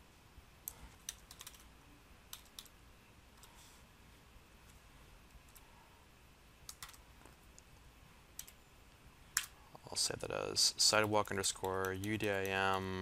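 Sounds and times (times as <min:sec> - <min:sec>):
faint keyboard keystrokes: 0:00.6 - 0:01.7, 0:06.7 - 0:07.4, 0:08.4 - 0:08.6.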